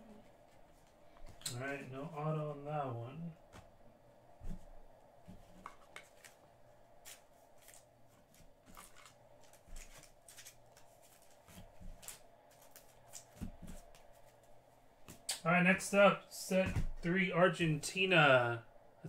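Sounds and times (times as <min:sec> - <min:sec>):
low room hum: 0:00.0 - 0:19.0
cards rustling and clicking: 0:05.4 - 0:06.4, 0:07.0 - 0:15.3.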